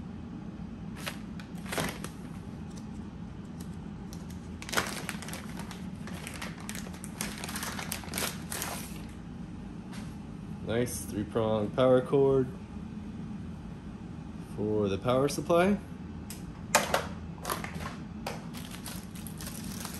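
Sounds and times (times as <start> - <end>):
plastic bag crinkling: 1.0 - 2.4, 4.2 - 9.2, 18.5 - 19.9.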